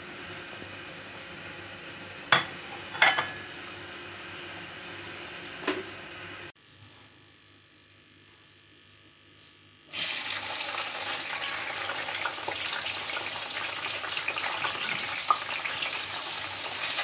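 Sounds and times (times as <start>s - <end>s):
kitchenware clinking: 2.3s - 3.4s.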